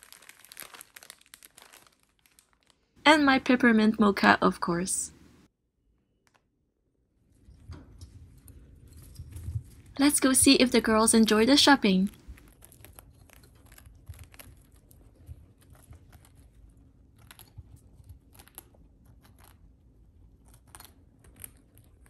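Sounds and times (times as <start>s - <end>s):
guinea pigs crunching hay: 9.4s - 19.6s.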